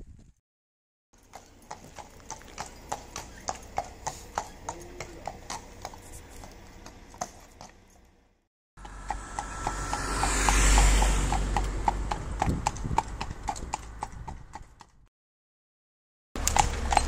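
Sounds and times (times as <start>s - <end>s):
horse hooves on asphalt: 1.2s - 9.8s, 11.1s - 15.1s, 16.4s - 17.0s
low rumble: 8.8s - 13.1s.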